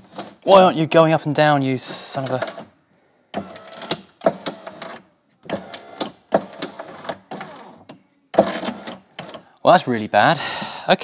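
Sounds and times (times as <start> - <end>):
window motor grinding and clicking: 3.4 - 9.4.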